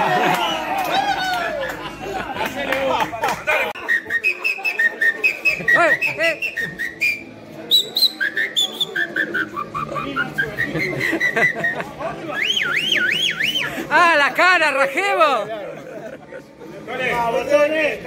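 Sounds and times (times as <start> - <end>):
shrill whistled chirps and trills: 3.8 - 13.7.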